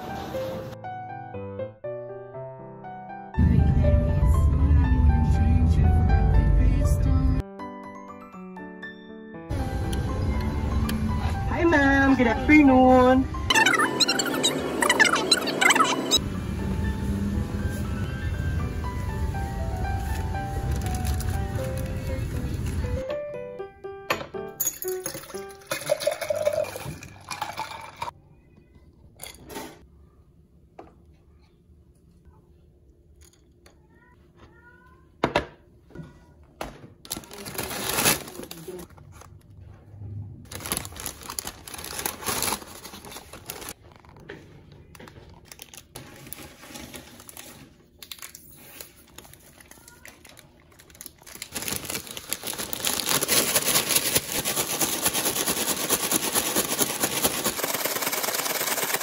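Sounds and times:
fries shaken in paper bag: 19.8s - 23.0s, 37.2s - 38.9s, 40.5s - 43.8s, 48.5s - 59.0s
cardboard packaging crinkling: 20.0s - 23.0s, 37.1s - 39.5s, 40.5s - 44.2s, 45.1s - 59.0s
coffee and ice pouring into jar: 24.6s - 28.1s, 51.2s - 59.0s.

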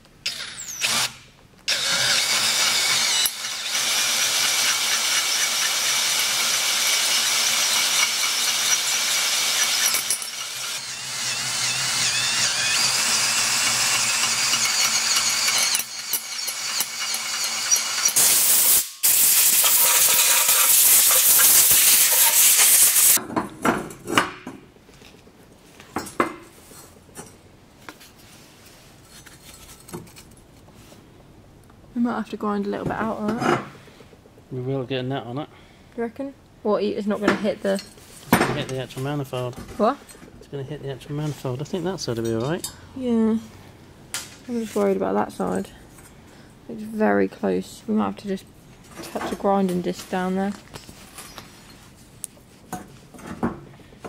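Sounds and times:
cordless drill drilling metal: 0.2s - 23.2s.

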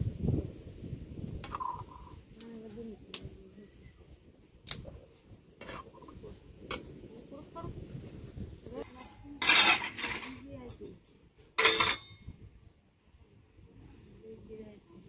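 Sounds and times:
bird calling: 1.5s - 2.4s
steel ladle clinking on pot: 11.6s - 12.2s.

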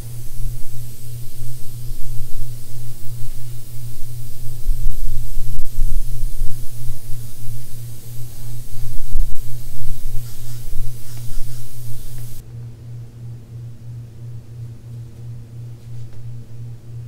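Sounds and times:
airbrush hissing air: 0.0s - 12.4s
low pulsing hum: 0.0s - 17.0s.

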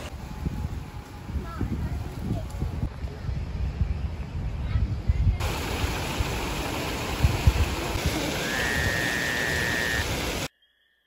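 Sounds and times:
wind buffeting microphone: 0.1s - 8.2s
flowing water rushing: 5.4s - 10.5s
high steady tone: 8.4s - 11.0s.

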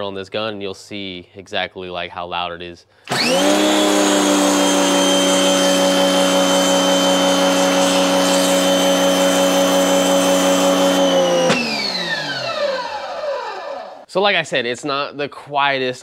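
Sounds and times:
pressure washer motor whine: 3.1s - 14.1s.

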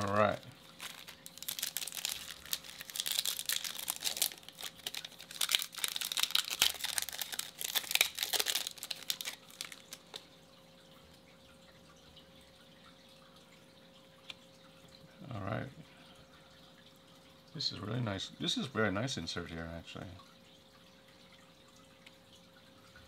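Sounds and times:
foil wrapper crinkling and tearing: 0.0s - 10.2s.

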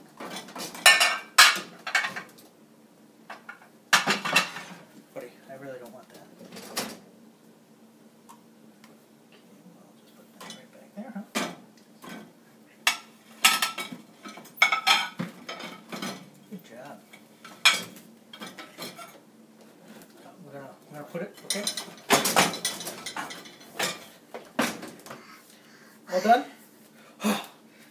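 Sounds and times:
dishwasher racks clinking: 21.4s - 25.0s.

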